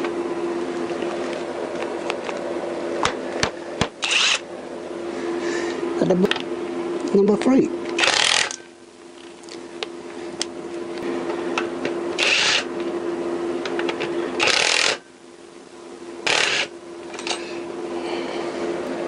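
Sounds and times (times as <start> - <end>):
steady low hum: 0.0 - 19.0
hand ratchet clicking rapidly: 8.0 - 8.6, 14.4 - 15.0.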